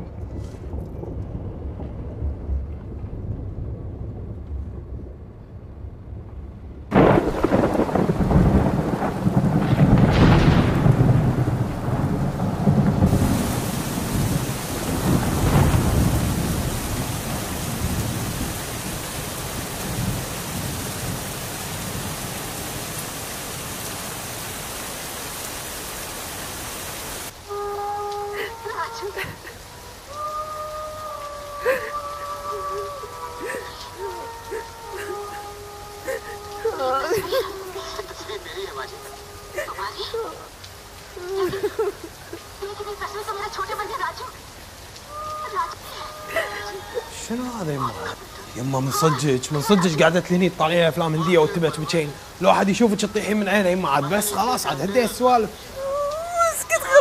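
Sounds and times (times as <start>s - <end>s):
low rumble: 0.0s - 21.2s
thunderclap: 0.0s - 25.5s
heavy rain: 0.0s - 57.0s.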